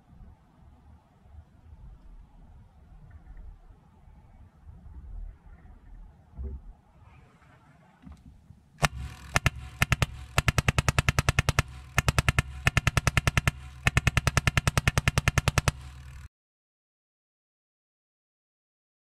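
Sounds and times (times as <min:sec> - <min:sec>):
low steady hum: 0:00.0 - 0:16.3
air rifle shots: 0:08.8 - 0:16.3.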